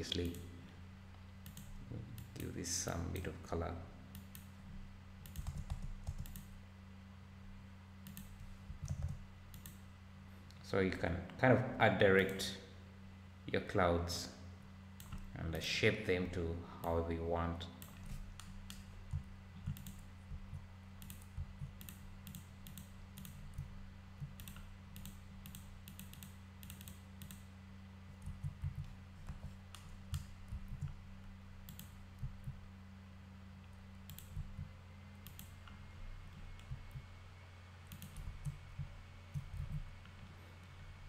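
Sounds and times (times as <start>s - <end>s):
steady low hum: 0.0s - 41.0s
keyboard and mouse clicking: 1.4s - 2.5s, 5.2s - 6.5s, 8.0s - 9.8s, 17.8s - 27.4s, 28.2s - 31.0s, 31.6s - 32.6s, 34.1s - 37.0s, 37.9s - 39.9s.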